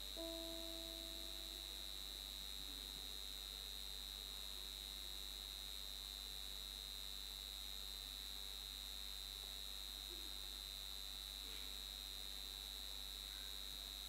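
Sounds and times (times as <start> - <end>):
low hum: 0.0 - 2.1
high-pitched electrical whine: 0.0 - 9.9.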